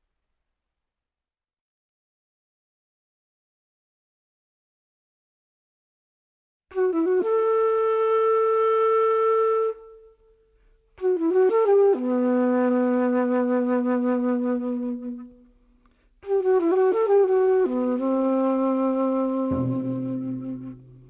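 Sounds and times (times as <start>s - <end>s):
flute playing slow phrases: 6.7s - 15.5s, 16.2s - 21.0s.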